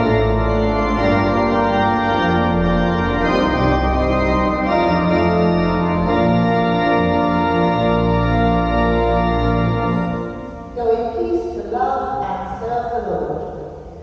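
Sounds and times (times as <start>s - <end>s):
church organ playing chords: 0.0s - 11.2s.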